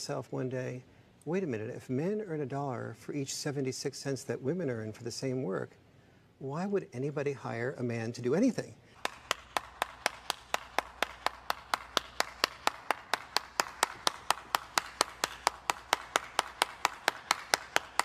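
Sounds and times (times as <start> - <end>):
person clapping hands: 9.0 - 18.0.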